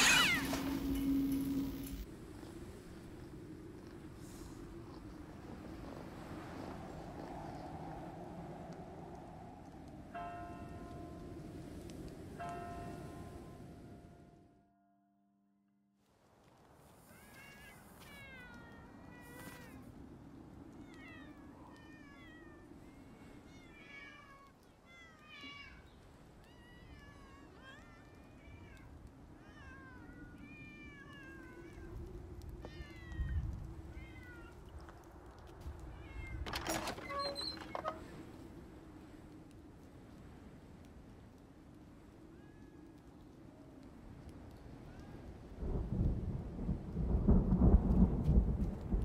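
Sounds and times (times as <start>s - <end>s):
cats meowing: 0.0s - 1.3s, 20.7s - 34.8s.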